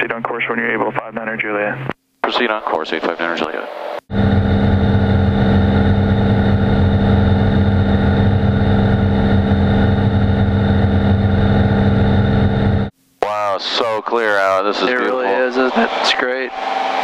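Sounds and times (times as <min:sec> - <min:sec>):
aircraft engine and propeller droning: 0:04.1 - 0:12.9.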